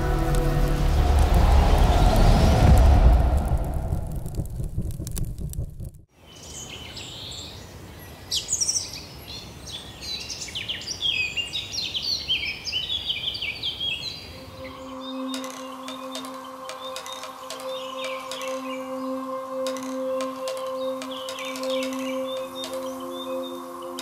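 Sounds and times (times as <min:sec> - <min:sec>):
deep musical sting: 0:00.0 - 0:06.0
birds singing and chirping: 0:06.2 - 0:24.0
singing bowl ringing: 0:14.4 - 0:24.0.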